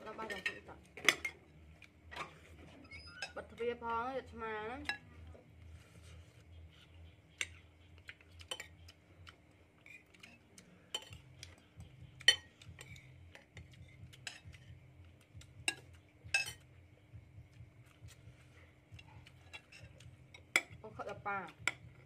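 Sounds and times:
spoons clinking on ceramic bowls: 8.4 - 8.8, 9.9 - 11.2, 12.2 - 14.7, 15.6 - 16.7, 19.3 - 21.9.

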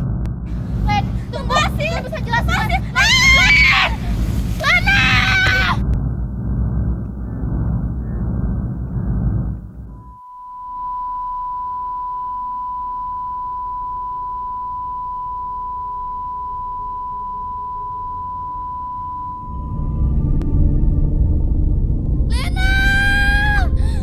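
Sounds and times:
high-pitched pure tone: 5.8 - 22.7.

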